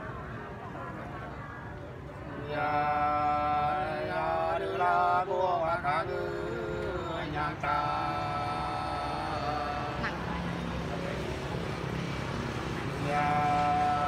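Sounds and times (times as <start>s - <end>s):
man singing unaccompanied: 2.4s - 10.5s, 12.9s - 14.0s.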